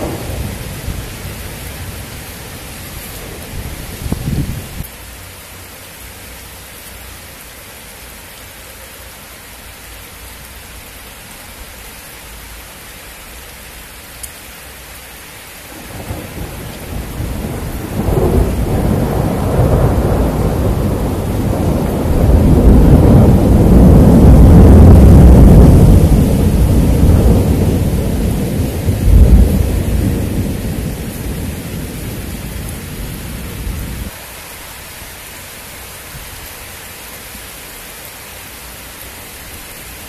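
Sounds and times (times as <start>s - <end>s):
thunder rumbling: 0.0s - 4.9s, 15.7s - 34.1s
rain hissing: 0.0s - 40.0s.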